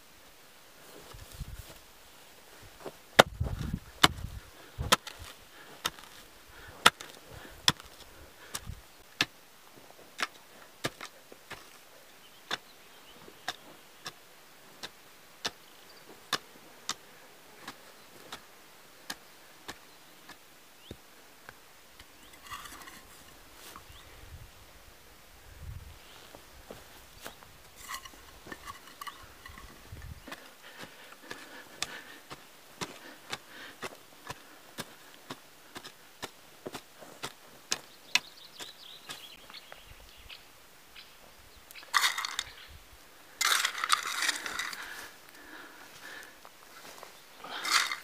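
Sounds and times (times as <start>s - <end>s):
hand hoe chopping into soil: 2.8s - 9.4s, 10.2s - 11.8s, 12.5s - 12.7s, 13.4s - 14.2s, 14.8s - 17.0s, 17.6s - 21.0s, 27.2s - 39.4s, 43.4s - 44.9s.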